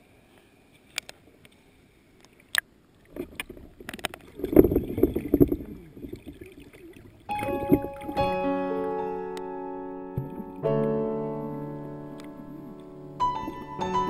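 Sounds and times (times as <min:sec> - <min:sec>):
pool water sloshing and splashing: 0:02.2 - 0:08.4.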